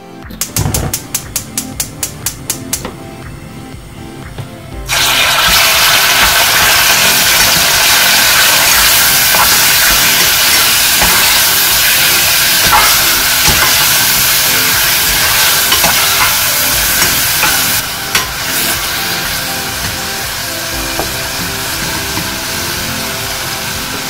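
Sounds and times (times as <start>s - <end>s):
pork sizzling in a pot: 4.9s - 24.0s.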